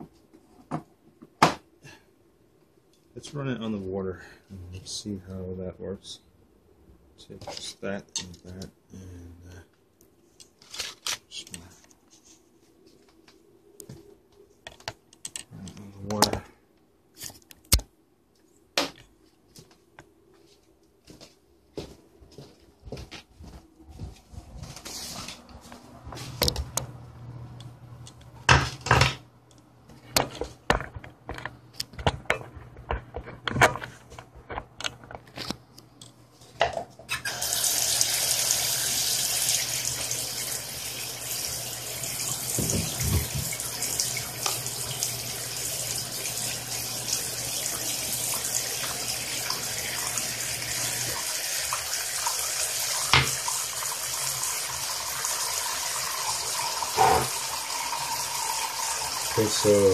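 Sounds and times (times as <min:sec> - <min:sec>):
low steady hum: 0:11.3 - 0:37.1
water jet splashing into sink: 0:37.2 - 0:59.9.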